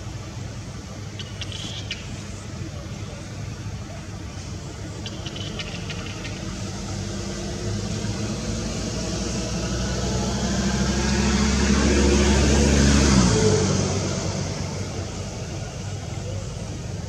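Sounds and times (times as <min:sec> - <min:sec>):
vehicle engine passing by: 0:05.3 - 0:17.0.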